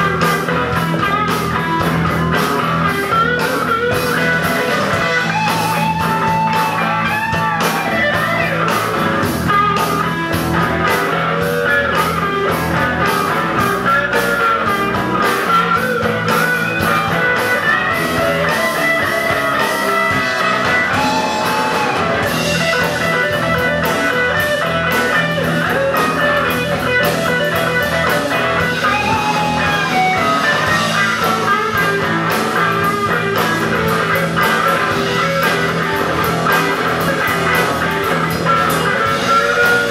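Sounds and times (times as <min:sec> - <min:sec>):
bass guitar: 0:00.0 - 0:39.9
drum kit: 0:00.0 - 0:39.9
electric guitar lead with bent notes: 0:00.0 - 0:39.9.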